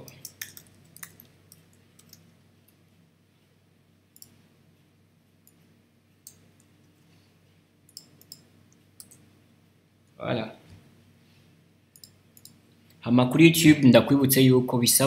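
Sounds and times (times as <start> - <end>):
keyboard and mouse clicks: 0.0 - 2.3, 4.1 - 4.4, 6.2 - 6.7, 7.9 - 9.3, 11.9 - 12.6
low steady hum: 0.0 - 15.0.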